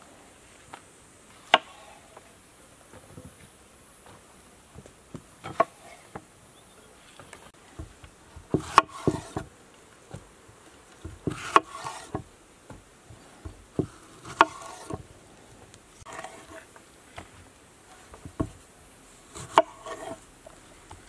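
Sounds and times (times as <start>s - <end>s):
knife cutting tomatoes: 14.0s - 15.0s, 19.3s - 20.2s.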